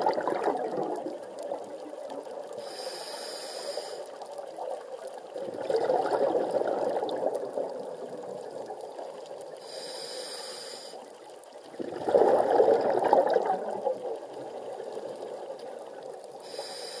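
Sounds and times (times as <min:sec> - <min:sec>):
exhaled bubbles rushing: 0:00.0 - 0:02.5, 0:04.6 - 0:09.2, 0:11.7 - 0:15.6
regulator inhalation hiss: 0:02.6 - 0:04.2, 0:09.6 - 0:11.0, 0:16.4 - 0:17.0.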